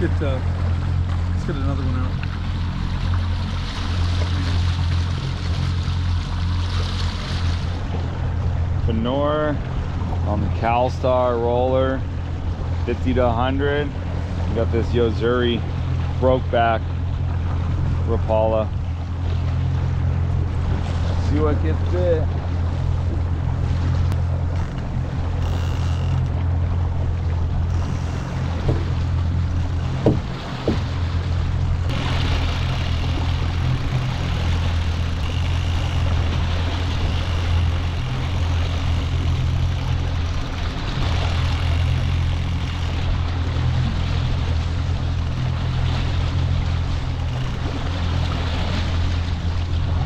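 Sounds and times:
boat motor droning: 0:00.0 - 0:50.0
water noise: 0:00.0 - 0:50.0
sharp knocks: 0:29.5 - 0:31.0.

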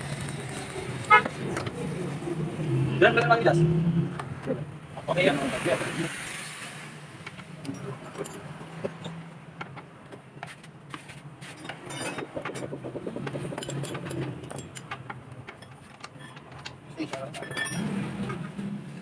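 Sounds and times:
metal tools clinking: 0:07.6 - 0:09.2, 0:11.5 - 0:18.4.

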